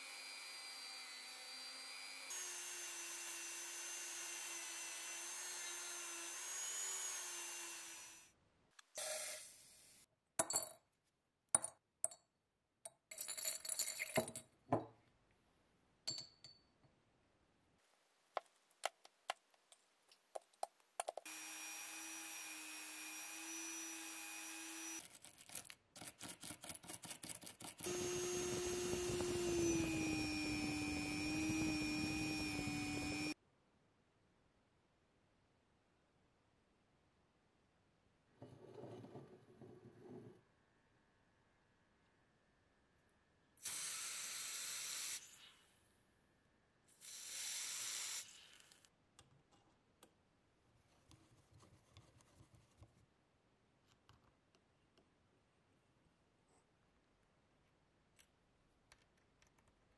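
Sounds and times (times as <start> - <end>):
metal parts and glass clinking: 13.1 - 14.5
rotary tool whining: 27.8 - 33.4.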